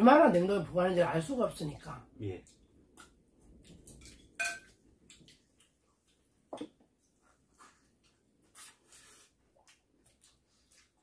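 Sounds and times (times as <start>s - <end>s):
faint eating sounds: 1.7s - 11.0s
chopstick clinking on ceramic plate: 4.4s - 4.7s.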